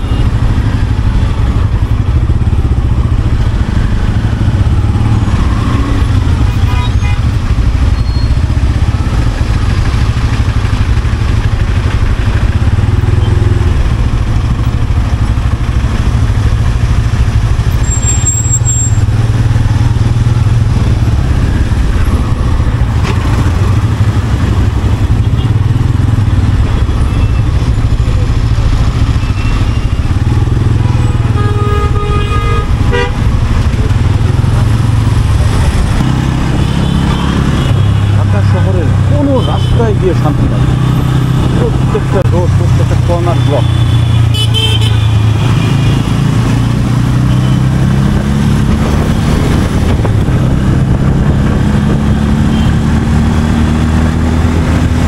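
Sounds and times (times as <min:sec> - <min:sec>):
traffic engines running: 0:00.0 - 0:55.0
vehicle horn honking: 0:06.6 - 0:07.4, 0:31.3 - 0:33.3, 0:43.4 - 0:46.0, 0:52.5 - 0:52.8.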